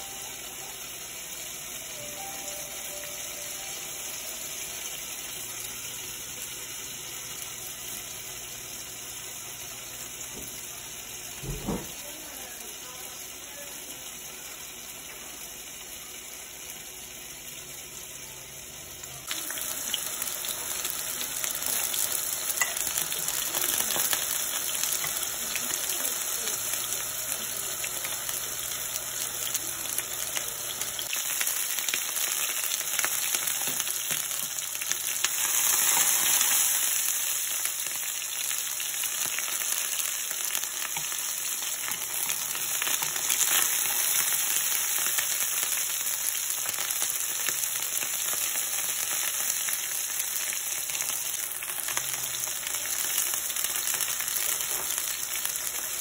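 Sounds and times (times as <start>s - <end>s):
kababs sizzling in hot oil: 0.0s - 56.0s.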